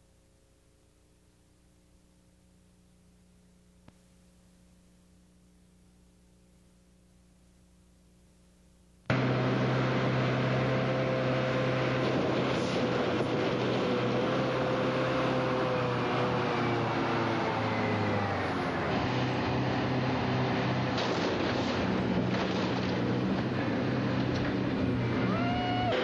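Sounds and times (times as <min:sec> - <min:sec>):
large diesel engine droning: 0:09.1 - 0:26.0.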